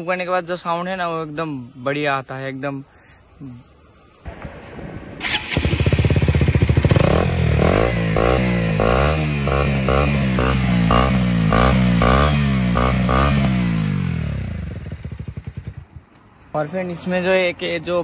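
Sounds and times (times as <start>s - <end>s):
throttle blips revving engine: 5.2s - 15.8s
motorcycle engine idling: 5.2s - 16.5s.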